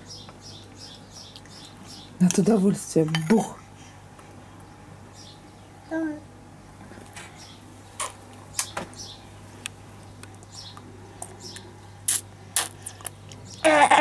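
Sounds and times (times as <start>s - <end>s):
baby lip smacks: 11.2s - 13.6s.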